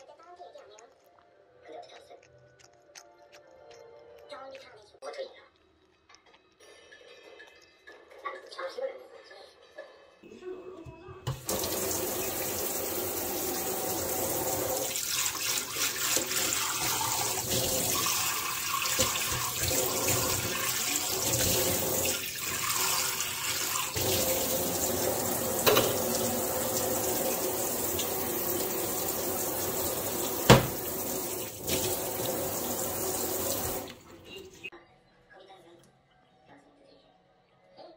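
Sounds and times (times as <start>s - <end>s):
tap running into steel sink: 25.6s - 26.3s, 30.2s - 31.1s.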